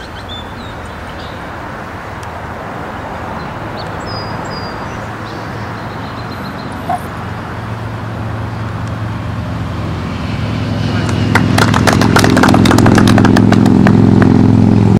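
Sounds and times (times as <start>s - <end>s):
rushing outdoor noise: 0.0s - 14.9s
low motor hum: 4.6s - 14.9s.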